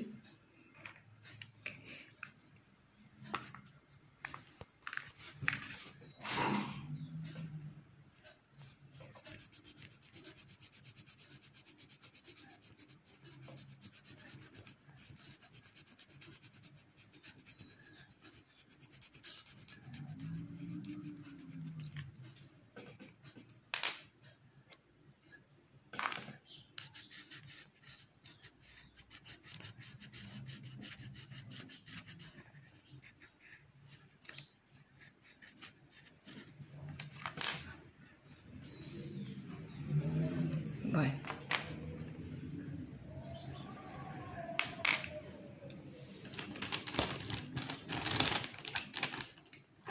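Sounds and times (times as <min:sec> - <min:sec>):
pencil scratching on paper: 0:08.1 - 0:22.1, 0:26.8 - 0:37.2.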